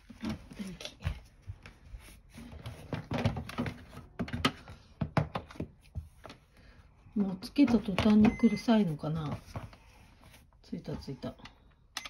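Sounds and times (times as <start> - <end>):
plastic trays knocking and clicking: 2.8 - 5.8.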